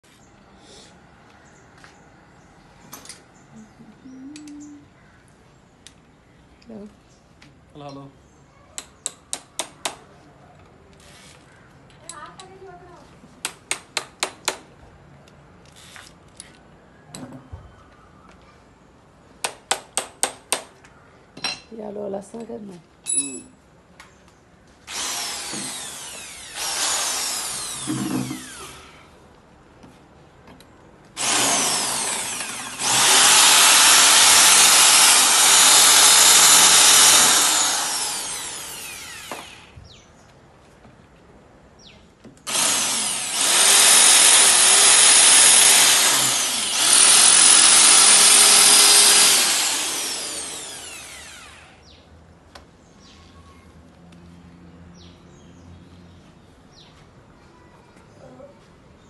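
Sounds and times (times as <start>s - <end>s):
electric drill running: 24.9s - 29.1s, 31.2s - 39.8s, 42.5s - 51.9s.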